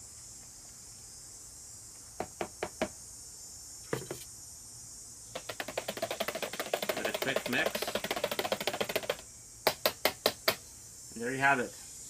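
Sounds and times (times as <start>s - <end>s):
steady high hiss: 0.0s - 12.0s
plastic jug knocking: 3.9s - 4.2s, 5.4s - 10.6s.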